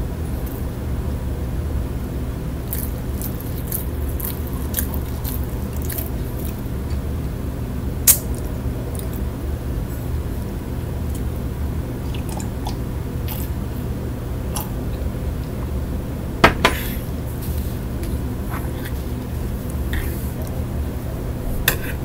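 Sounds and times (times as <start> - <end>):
low steady hum: 0.0 - 22.0
person chewing food: 2.7 - 7.1.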